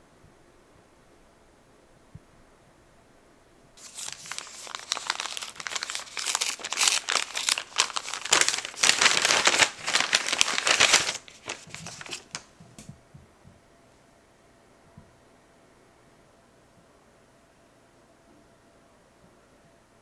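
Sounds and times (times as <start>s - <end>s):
paper packet crinkling: 3.8s - 12.6s.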